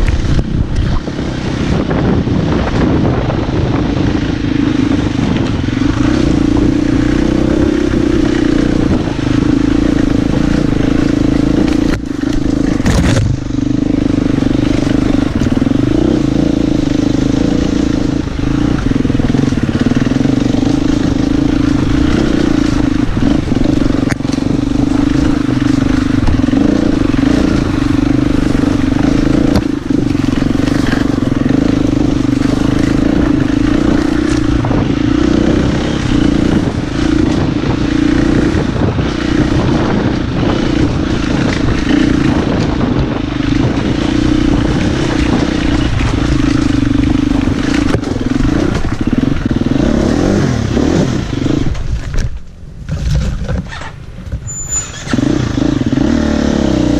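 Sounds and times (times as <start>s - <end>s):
motorcycle engine running: 0.0s - 56.9s
wheels clattering over stones: 23.7s - 35.5s.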